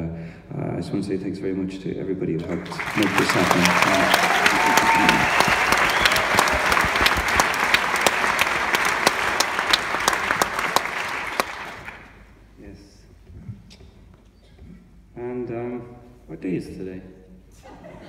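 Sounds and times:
audience applauding: 2.4 - 12.2.

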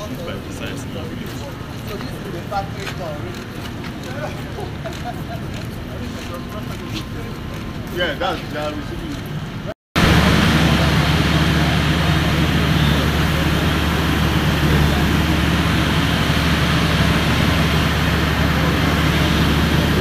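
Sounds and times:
people talking: 0.0 - 9.3, 10.0 - 20.0
vehicle engine idling: 10.0 - 20.0.

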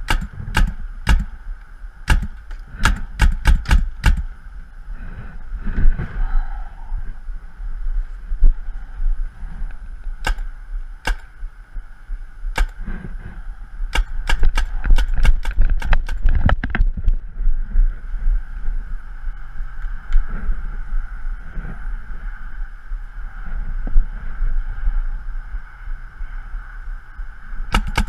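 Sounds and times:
paintball marker firing: 0.0 - 1.4, 2.1 - 4.3, 10.2 - 11.3, 12.6 - 12.9, 13.9 - 16.4, 27.7 - 28.0.

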